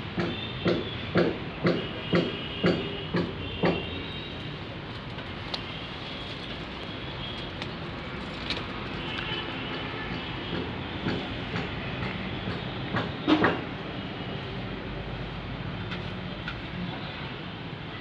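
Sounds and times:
outdoor background rumble: 0.0s - 13.8s.

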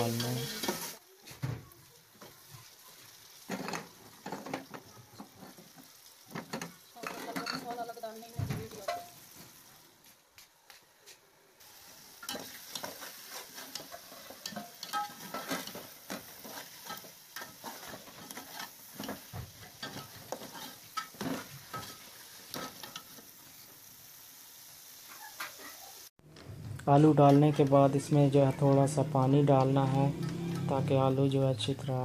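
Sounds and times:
food sizzling: 0.0s - 32.0s
metal spoon scraping metal pot: 29.6s - 30.8s.

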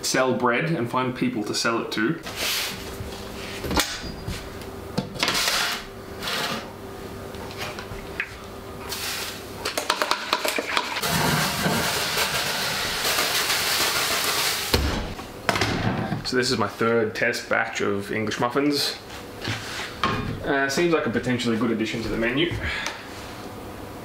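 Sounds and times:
steady oven hum: 0.0s - 24.0s
pump sprayer hissing: 11.0s - 14.8s.

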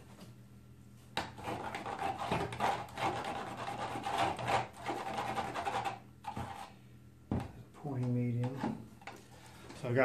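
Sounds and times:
rough scraping and rubbing: 1.4s - 6.7s.

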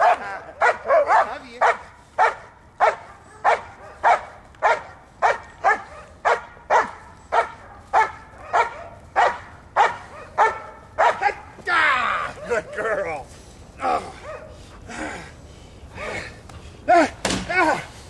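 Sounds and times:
dog barking: 0.0s - 11.4s, 12.3s - 13.0s, 14.2s - 14.6s.

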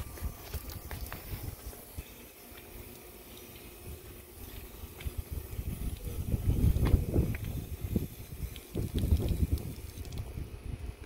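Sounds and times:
water splashing on car: 7.9s - 10.3s.

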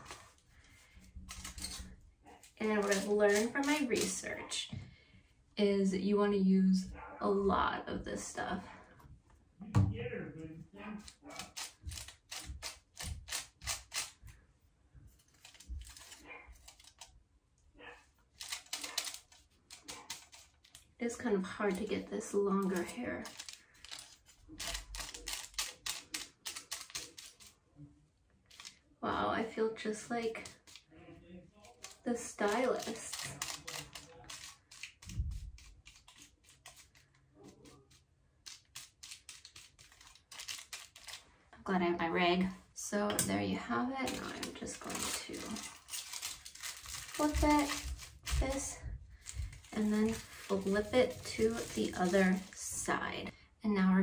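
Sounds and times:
aluminium foil crinkling: 0.0s - 4.3s, 15.1s - 17.2s, 18.2s - 27.6s, 28.4s - 28.9s, 30.1s - 31.0s, 31.6s - 41.3s, 44.0s - 53.0s.

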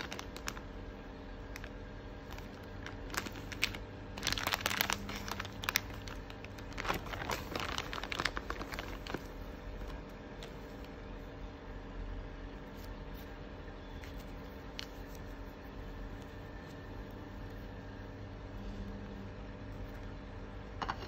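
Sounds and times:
plastic bag crinkling: 0.0s - 11.1s
low steady hum: 0.0s - 21.0s.

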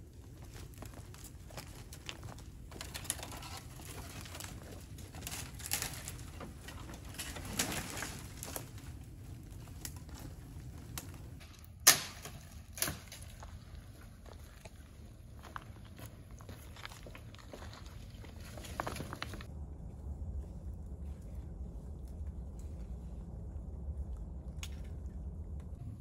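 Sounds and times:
dry branches scraping over rocks: 0.2s - 11.5s, 15.4s - 19.5s
sharp wood cracks: 1.0s - 9.0s, 9.6s - 13.6s
twigs snapping: 1.1s - 13.6s.

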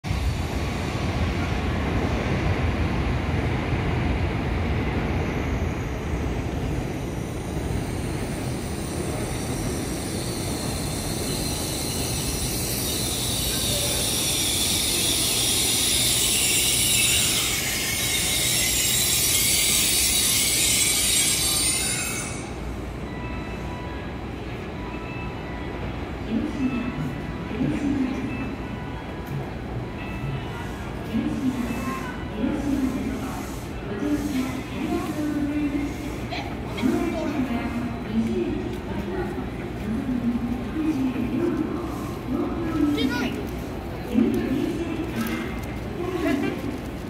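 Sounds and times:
train rumbling: 0.0s - 47.0s
high-pitched brake squeal: 7.0s - 23.9s.

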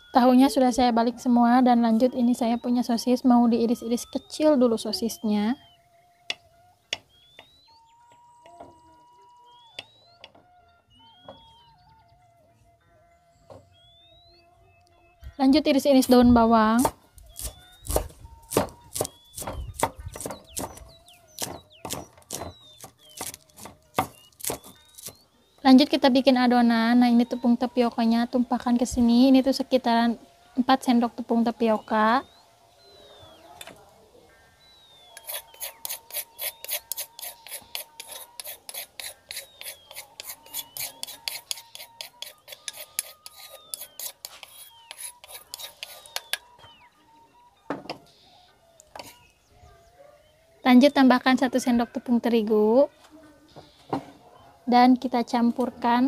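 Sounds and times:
knife chopping on wooden board: 16.8s - 25.2s
metal spoon scraping plate: 35.2s - 46.4s.

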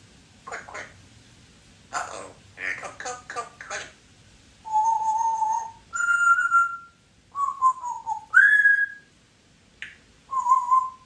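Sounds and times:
parrot whistling: 4.7s - 9.1s, 10.3s - 11.0s.

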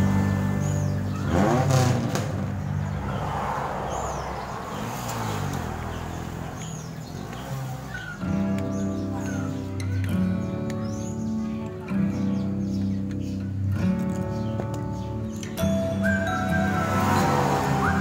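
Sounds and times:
motor vehicle passing: 0.0s - 9.7s, 14.2s - 18.0s
small birds chirping: 0.0s - 18.0s.

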